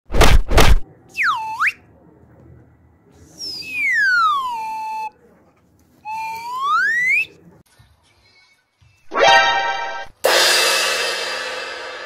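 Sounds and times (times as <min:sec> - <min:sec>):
slide whistle glide: 0:06.1 - 0:07.3.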